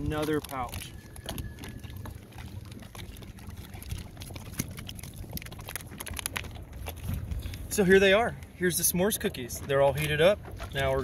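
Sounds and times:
plastic pouch crinkling: 0:00.0 - 0:07.1
steady low rumble: 0:00.0 - 0:11.0.

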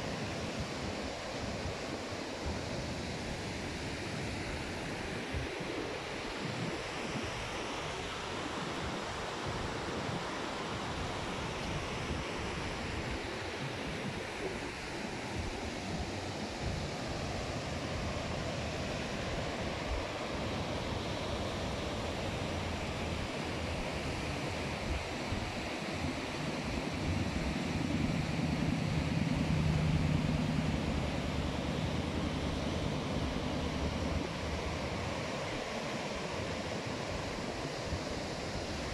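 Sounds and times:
wind on microphone: 0:00.0 - 0:38.9
low hum: 0:26.3 - 0:35.0.

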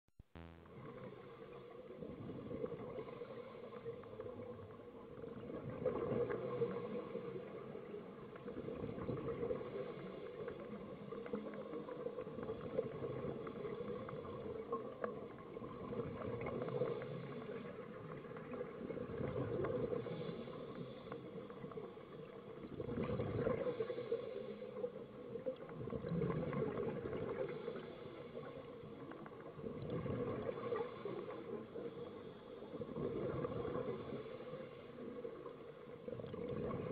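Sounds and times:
regulator bubbles gurgling underwater: 0:00.7 - 0:36.9.

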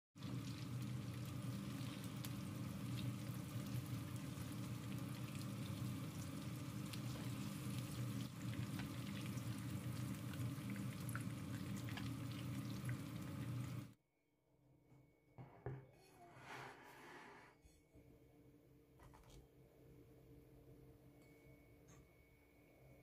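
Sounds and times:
food frying in hot oil: 0:00.2 - 0:14.0.

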